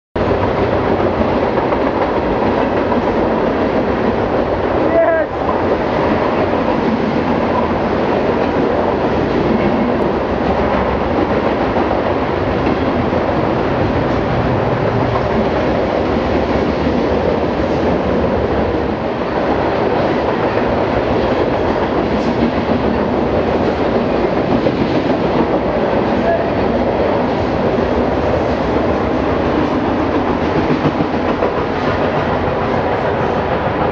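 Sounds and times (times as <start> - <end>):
freight train cars rolling past: 0.2 - 33.9.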